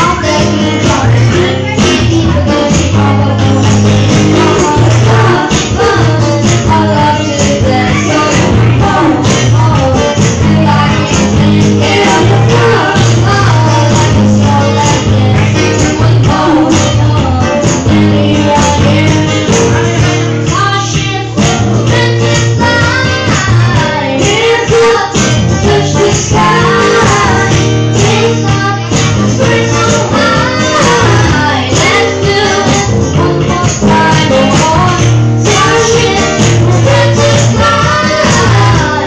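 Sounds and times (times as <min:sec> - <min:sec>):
acoustic guitar: 0:00.0 - 0:39.0
amplified singing: 0:00.0 - 0:39.0.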